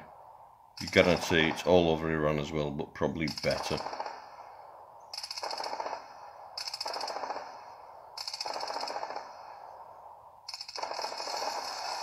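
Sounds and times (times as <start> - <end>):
automatic cannon fire: 5.2 - 9.7, 10.5 - 12.0.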